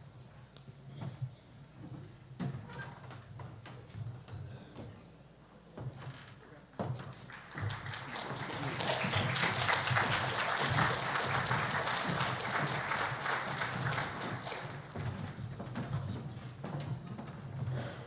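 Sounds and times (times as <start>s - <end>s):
audience applauding: 7.1s - 15.4s.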